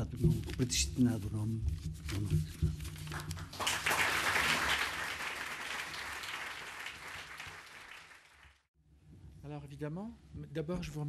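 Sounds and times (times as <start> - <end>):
audience applauding: 3.1 - 8.7.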